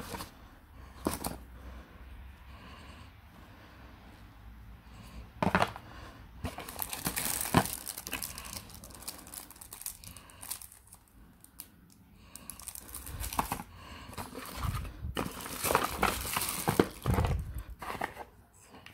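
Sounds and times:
plastic bag crinkling: 6.5s - 18.1s.

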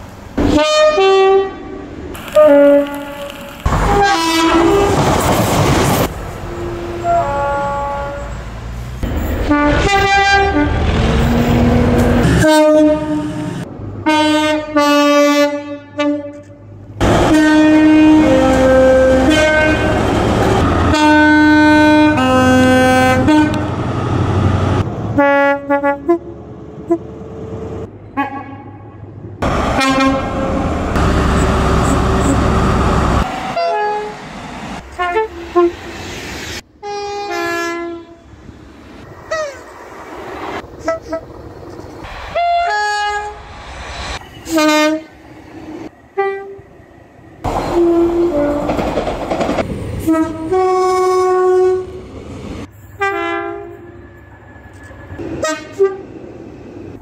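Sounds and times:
rumble of trains passing: 0.0s - 57.0s
two-tone train air horns: 0.4s - 5.0s, 6.5s - 8.4s, 9.4s - 20.0s, 20.8s - 23.7s, 25.2s - 26.3s, 28.2s - 28.8s, 29.8s - 32.9s, 33.5s - 34.2s, 34.9s - 35.9s, 36.8s - 38.2s, 40.8s - 41.3s, 42.3s - 43.4s, 44.2s - 45.1s, 46.2s - 46.6s, 47.5s - 48.8s, 50.0s - 52.0s, 53.0s - 53.9s, 55.4s - 56.1s.

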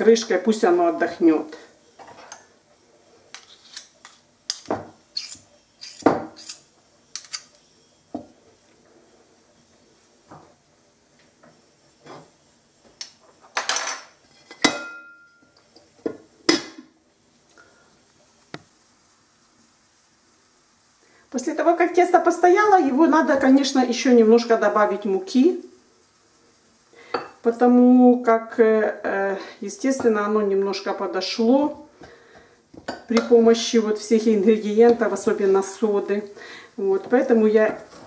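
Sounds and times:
kitchen dishes knocking and clinking: 13.5s - 15.4s.

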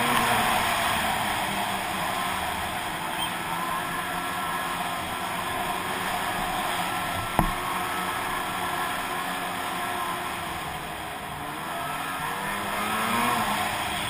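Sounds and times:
rushing wind and track noise: 0.0s - 14.0s
snowmobile engine running: 0.0s - 14.0s
sharp knock: 7.2s - 7.6s.

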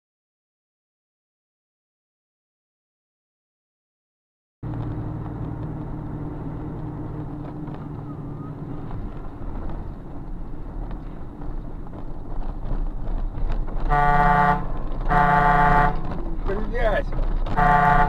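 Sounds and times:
car engine and road noise: 4.6s - 18.0s.

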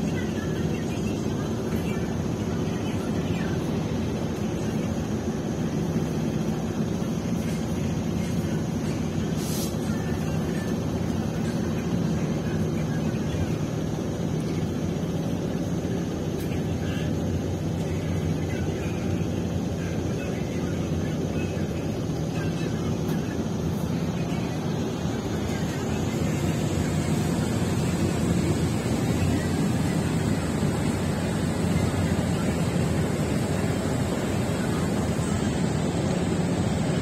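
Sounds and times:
bus engine and road drone: 0.0s - 37.0s
brief hiss: 9.4s - 9.8s.

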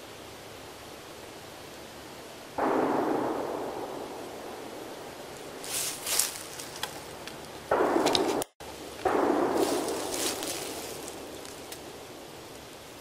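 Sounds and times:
distant gunshots echoing: 2.6s - 5.7s, 6.4s - 12.4s
light rustling: 5.3s - 8.4s, 9.0s - 12.7s.

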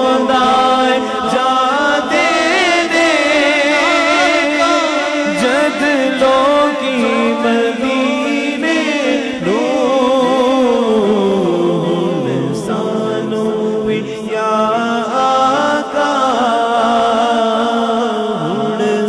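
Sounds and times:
man singing with heavy echo: 0.0s - 19.0s.

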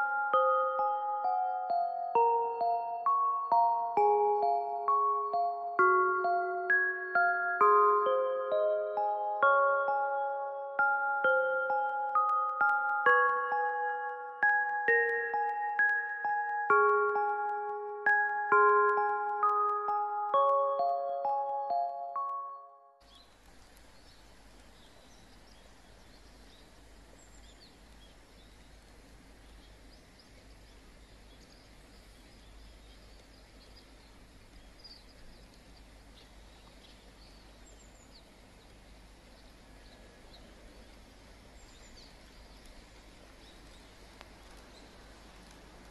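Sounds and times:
high bird chirps: 0.0s - 22.3s.

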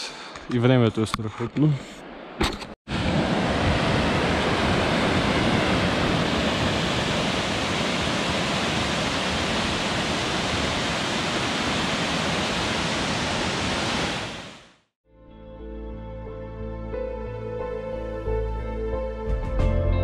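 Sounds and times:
waterfall rushing: 2.9s - 14.7s.

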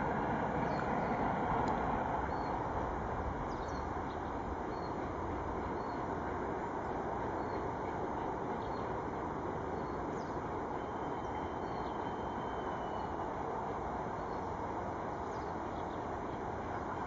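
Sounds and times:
steam train rumble: 0.0s - 17.0s
faint bird chirps: 9.8s - 13.4s.

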